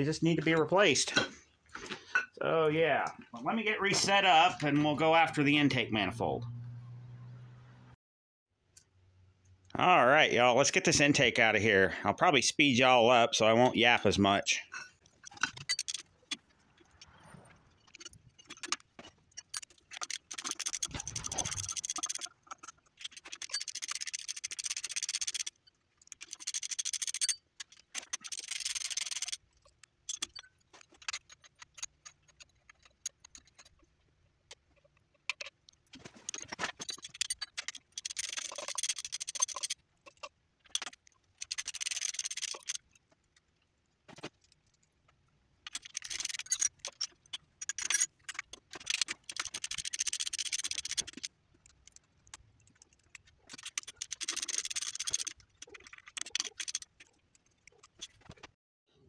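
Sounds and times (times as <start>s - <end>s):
metallic clicks of tools: 17.9s - 33.8s, 35.3s - 42.9s, 45.6s - 58.3s
socket ratchet clicking: 38.0s - 39.8s.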